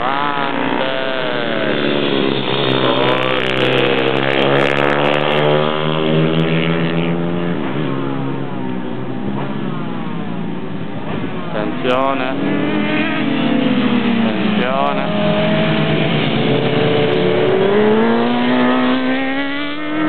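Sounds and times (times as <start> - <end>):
pit bike engines revving: 0.0 - 20.0.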